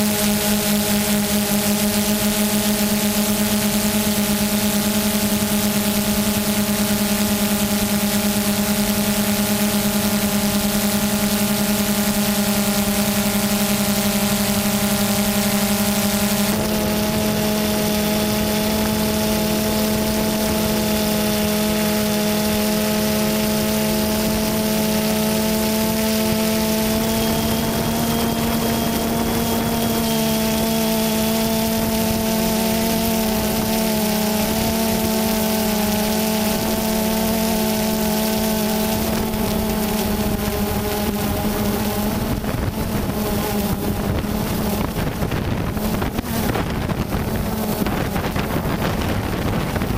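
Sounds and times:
drone propellers buzzing: 0.0s - 49.9s
wind buffeting microphone: 40.1s - 49.9s.

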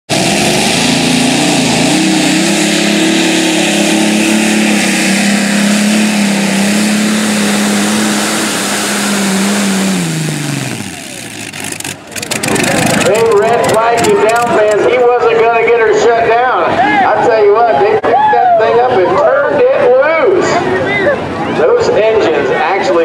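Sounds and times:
tractor engines running flat out: 0.1s - 16.8s.

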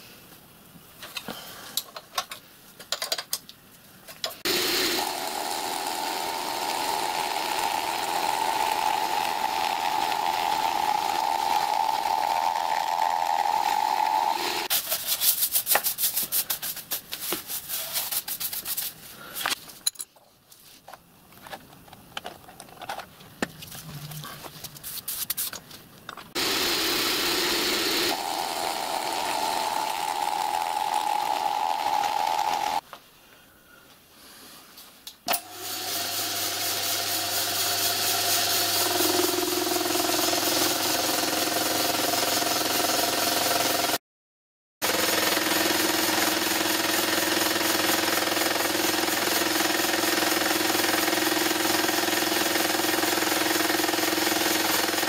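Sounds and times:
milling machine humming: 4.5s - 14.7s, 26.4s - 32.8s, 38.0s - 42.0s.

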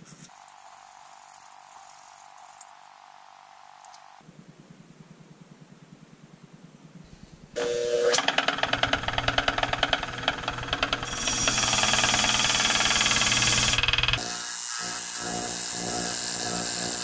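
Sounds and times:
bench grinder wire wheel scrubbing metal: 8.4s - 17.0s.

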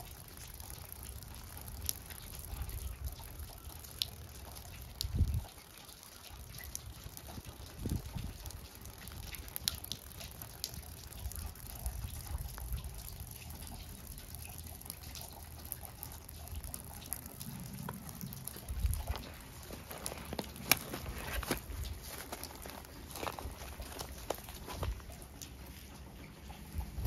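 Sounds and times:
water trickling and dripping: 0.0s - 27.0s
light clicks and rustles: 15.0s - 27.0s.

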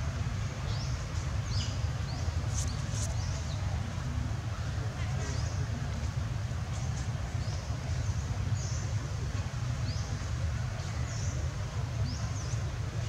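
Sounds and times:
small birds chirping: 0.5s - 3.8s.

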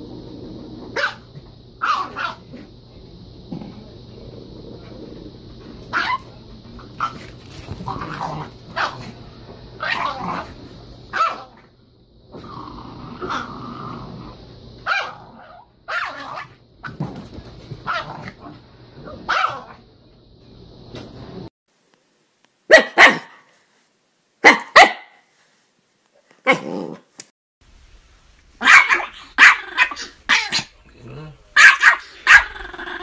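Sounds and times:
dog barking: 1.0s - 2.4s, 11.1s - 11.5s, 14.8s - 16.5s, 19.3s - 19.8s, 22.7s - 23.5s, 24.4s - 25.2s, 28.6s - 30.7s, 31.6s - 32.6s
dog growling: 7.0s - 9.2s, 9.8s - 10.6s, 12.3s - 14.4s, 26.5s - 27.1s, 29.1s - 33.0s.

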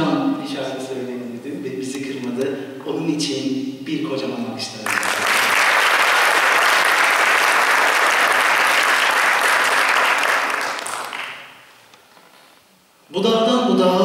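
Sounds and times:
audience applauding: 4.9s - 11.7s.

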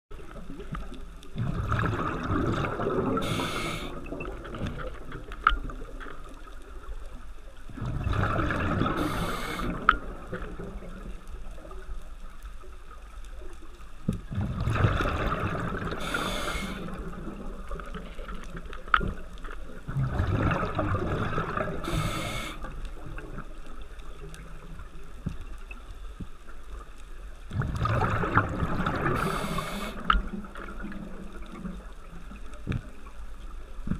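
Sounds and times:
exhaled bubbles underwater: 0.2s - 11.9s, 14.2s - 25.8s, 27.5s - 33.9s
regulator hiss: 3.2s - 4.0s, 9.0s - 9.8s, 16.0s - 17.0s, 21.8s - 22.7s, 29.2s - 30.1s.

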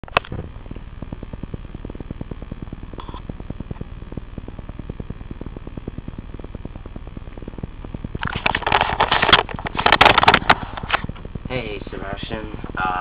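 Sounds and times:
desk fan running: 0.0s - 13.0s.

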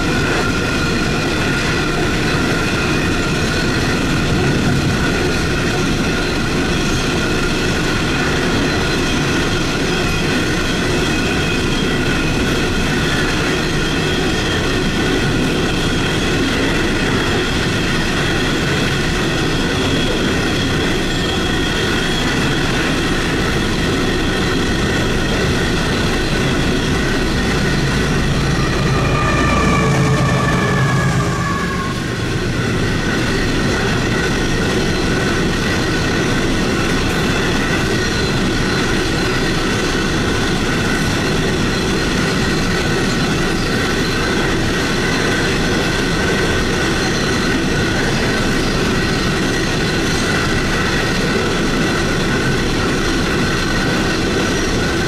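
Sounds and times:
steel wheels rumbling on rail: 0.0s - 55.0s
wheels squealing: 23.9s - 36.2s.

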